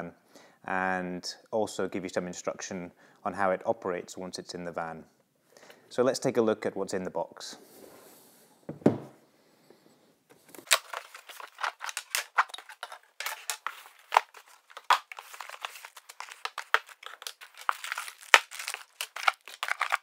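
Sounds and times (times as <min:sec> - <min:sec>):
packaging crinkling and rustling: 0:10.3 - 0:20.0.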